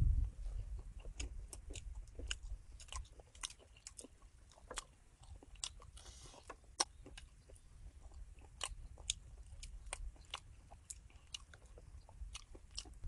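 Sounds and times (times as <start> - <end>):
low rumble: 0.0 - 2.7
crisp chewing crunches: 0.4 - 13.0.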